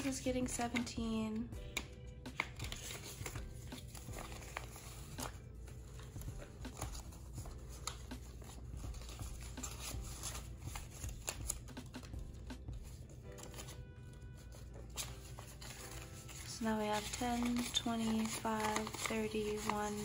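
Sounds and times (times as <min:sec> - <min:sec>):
banknotes flicking and rustling: 0:01.7 - 0:20.0.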